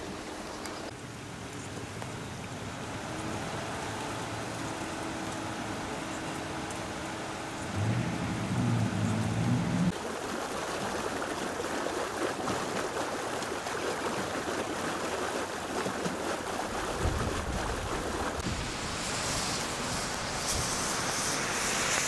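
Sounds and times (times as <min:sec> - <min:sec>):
floodwater rushing: 0:00.0 - 0:22.0
low rumble: 0:07.7 - 0:09.9.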